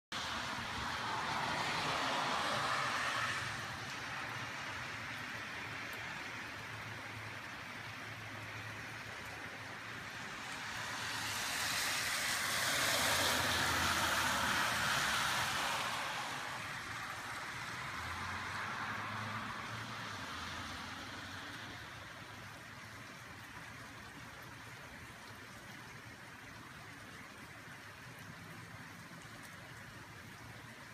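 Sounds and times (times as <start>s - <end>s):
car tyres hissing on wet road: 0.2s - 22.0s
rain falling on wet street: 0.2s - 30.9s.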